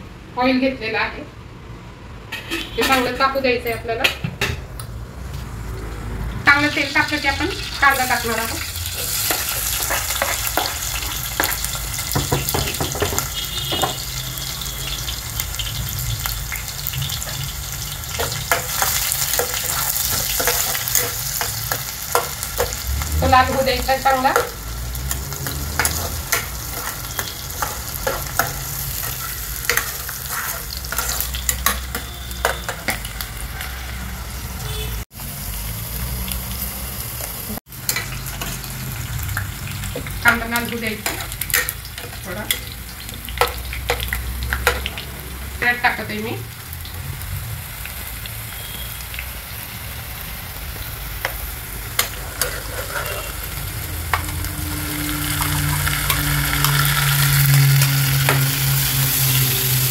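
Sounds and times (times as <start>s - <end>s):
onion sizzling in oil: 5.5s - 59.9s
ladle scraping a pot: 52.0s - 54.5s.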